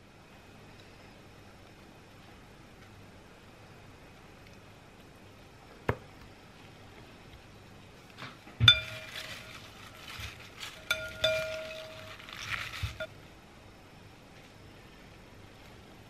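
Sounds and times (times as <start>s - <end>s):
salad leaves rustling: 8.6s - 13.1s
servers clinking against bowl: 8.7s - 9.6s, 10.8s - 13.1s.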